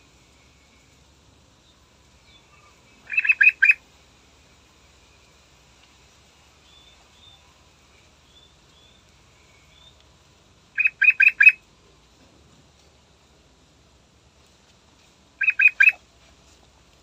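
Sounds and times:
bird chirps: 0:01.7 - 0:03.8, 0:06.6 - 0:10.0, 0:10.8 - 0:11.6, 0:15.4 - 0:16.0
bird whistled notes: 0:03.0 - 0:03.8, 0:10.8 - 0:11.6, 0:15.4 - 0:16.0.

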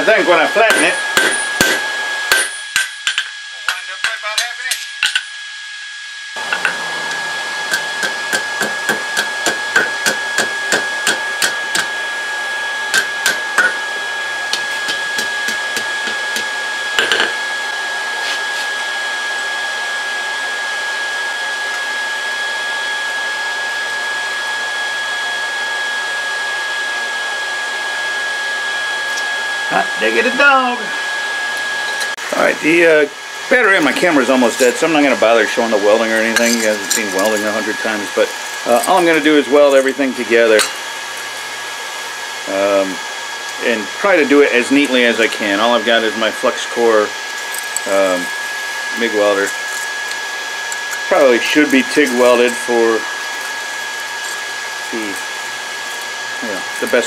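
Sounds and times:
hammer striking steel on anvil: 0:00.7 - 0:05.4, 0:07.7 - 0:11.9, 0:12.9 - 0:13.8, 0:40.6 - 0:40.8
steady whirring hum: 0:26.6 - 0:57.0.

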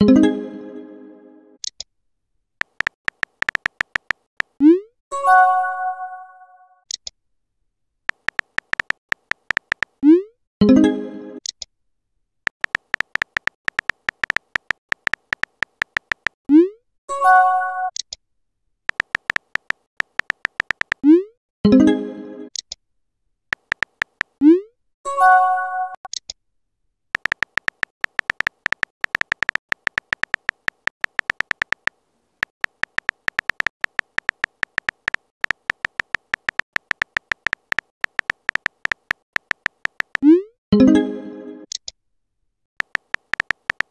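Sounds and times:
keyboard tap clicks: 0:02.6 - 0:04.5, 0:08.1 - 0:10.0, 0:12.5 - 0:16.4, 0:18.9 - 0:21.0, 0:23.6 - 0:24.4, 0:27.2 - 0:40.2, 0:42.8 - 0:43.9.

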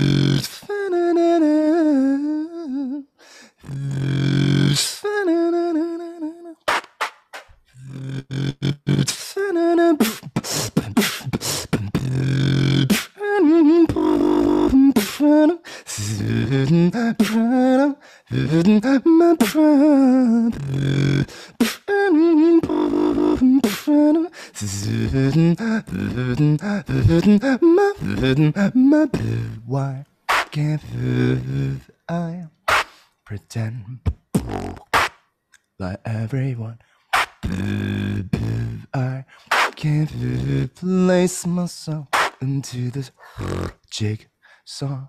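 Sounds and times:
beatboxed bass line: 0:00.0 - 0:00.6, 0:06.6 - 0:17.7, 0:18.3 - 0:32.0, 0:32.6 - 0:33.0, 0:34.0 - 0:35.2, 0:37.1 - 0:40.8, 0:42.0 - 0:42.8, 0:43.4 - 0:43.9
wordless sung melody: 0:00.0 - 0:45.0
beatboxing drum sounds: 0:06.6 - 0:09.4, 0:10.0 - 0:13.2, 0:13.9 - 0:15.2, 0:17.2 - 0:17.4, 0:19.4 - 0:19.6, 0:20.5 - 0:21.9, 0:30.3 - 0:31.5, 0:32.7 - 0:33.0, 0:34.0 - 0:35.2, 0:37.1 - 0:40.5, 0:42.1 - 0:42.5.

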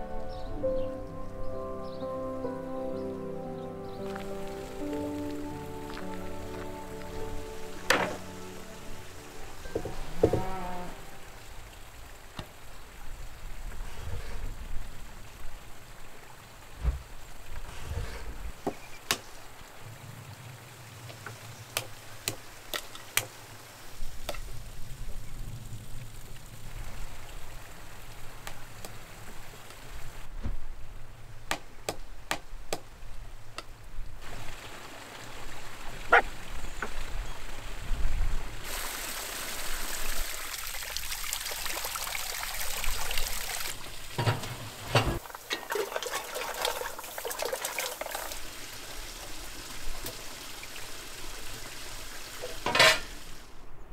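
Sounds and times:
water trickling and pouring: 0:04.0 - 0:28.4, 0:34.2 - 0:53.5
loud hiss: 0:38.6 - 0:40.7, 0:48.4 - 0:53.6.

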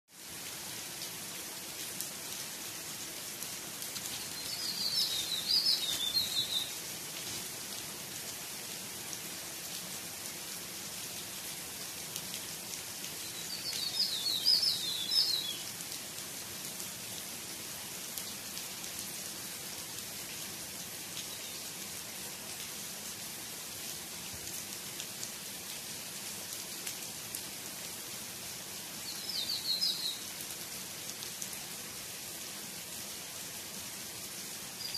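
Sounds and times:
rain falling on grass and trees: 0:00.1 - 0:34.9
bird chirping: 0:04.2 - 0:06.8, 0:13.2 - 0:15.6, 0:29.1 - 0:30.2.

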